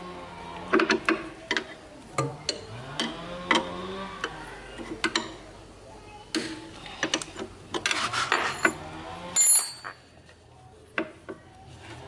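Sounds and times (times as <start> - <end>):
sharp ringing metal clink: 9.4 - 10.0.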